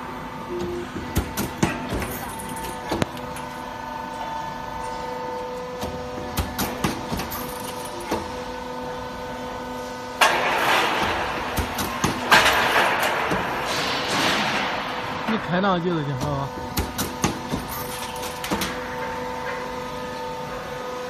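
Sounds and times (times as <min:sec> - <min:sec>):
roll forming machine hum: 0:00.0 - 0:21.0.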